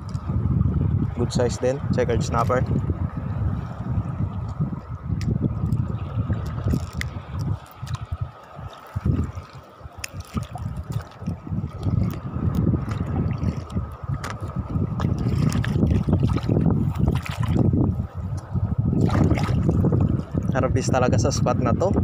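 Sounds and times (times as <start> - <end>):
wind buffeting microphone: 0.0 - 22.0
small waves lapping: 3.2 - 20.5.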